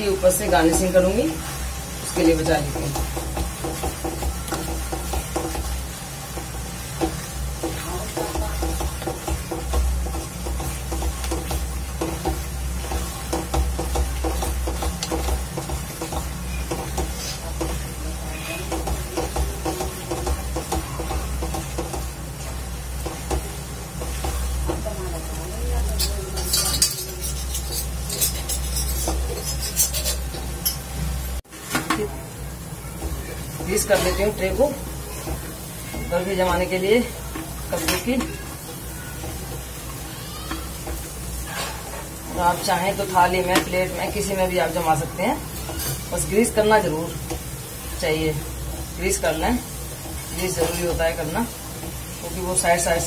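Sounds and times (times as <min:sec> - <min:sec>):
mixture sizzling faintly: 0:00.0 - 0:53.0
spatula stirring and scraping pan: 0:00.0 - 0:53.0.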